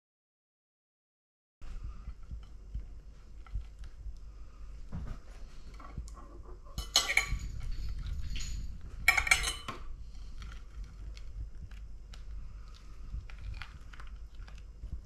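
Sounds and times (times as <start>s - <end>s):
utensils and dishes clinking: 6.7s - 9.9s.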